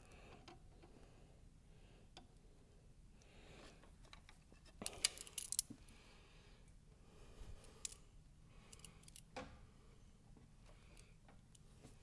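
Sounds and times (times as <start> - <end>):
metallic clicks and clinks: 4.8 - 5.7, 8.7 - 9.3.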